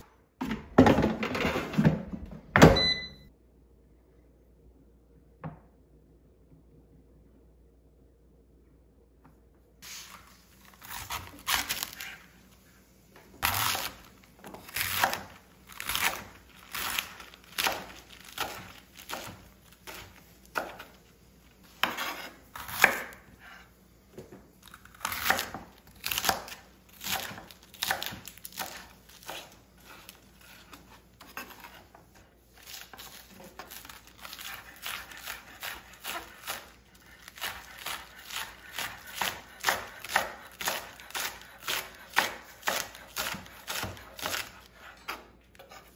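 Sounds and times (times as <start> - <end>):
knife cutting on cutting board: 13.4 - 21.0, 21.6 - 23.7, 24.7 - 45.9.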